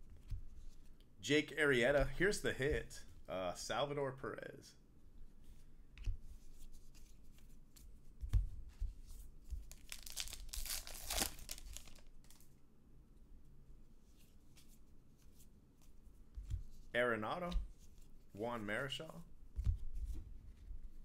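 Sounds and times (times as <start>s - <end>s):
cards rustling: 9.6s - 12.6s
wrapper tearing and crinkling: 9.7s - 12.5s.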